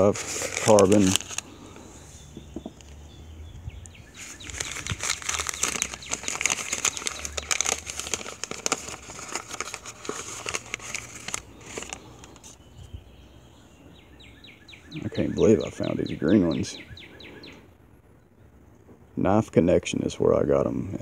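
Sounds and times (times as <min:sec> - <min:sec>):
paper wrapping crinkling: 0:00.0 - 0:01.6, 0:04.1 - 0:12.6.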